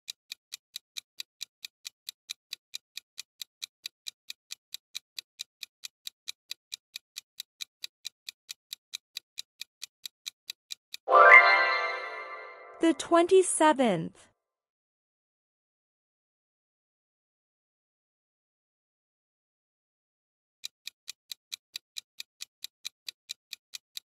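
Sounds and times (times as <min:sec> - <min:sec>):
clock ticking: 0:00.0 - 0:11.0, 0:12.8 - 0:13.9, 0:20.6 - 0:24.0.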